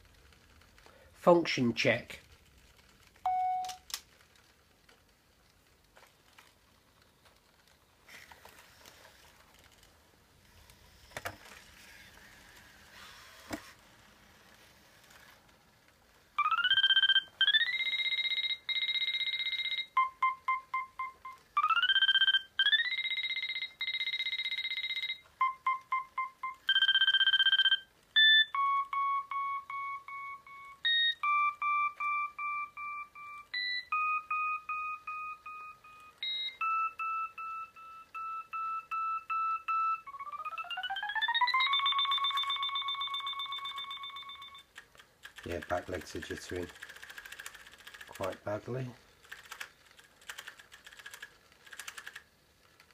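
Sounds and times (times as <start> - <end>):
robot dog electronic tones: 16.4 - 44.7.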